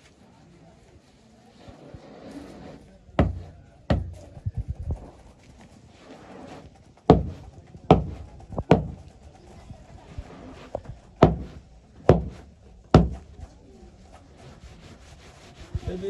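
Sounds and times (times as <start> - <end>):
hard knocks: 3.2 - 4.4, 7.1 - 9.1, 11.2 - 13.4.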